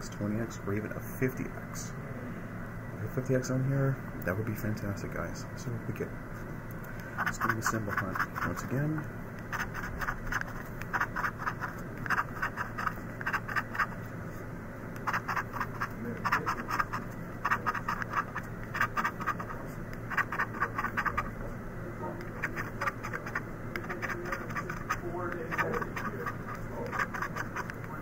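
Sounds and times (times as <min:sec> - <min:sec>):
lottery ticket being scratched: 0:07.2 - 0:14.1, 0:15.0 - 0:21.4, 0:22.2 - 0:28.0.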